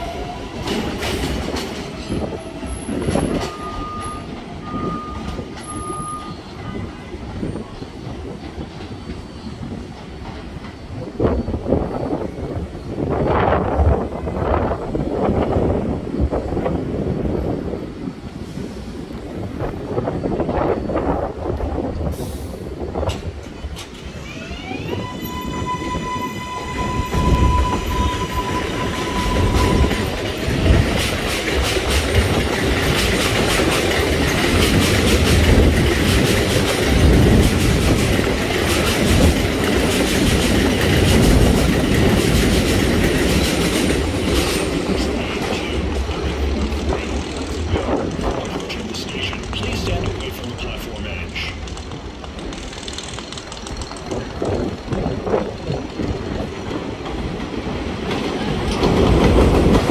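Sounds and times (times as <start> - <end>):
train rumbling on steel track: 0.0 - 59.9.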